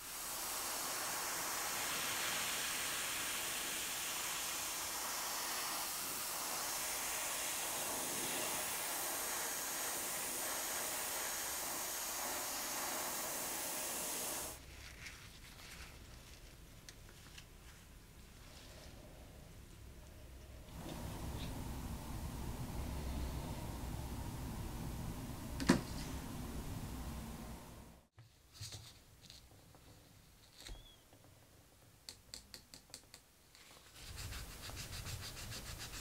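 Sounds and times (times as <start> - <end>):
spray paint hissing: 0.0 - 14.6.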